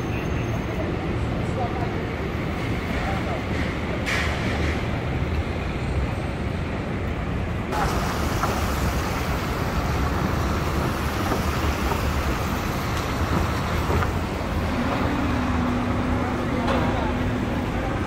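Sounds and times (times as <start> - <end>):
cars passing on wet road: 7.7 - 18.0.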